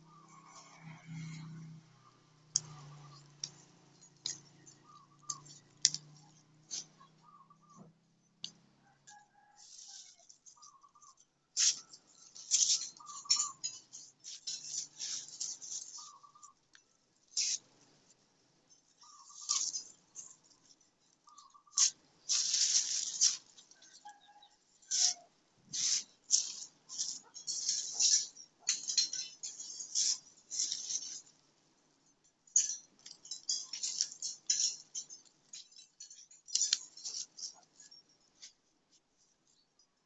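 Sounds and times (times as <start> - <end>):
herb stems and leaves rustling: 9.6 - 18.2, 18.8 - 39.7.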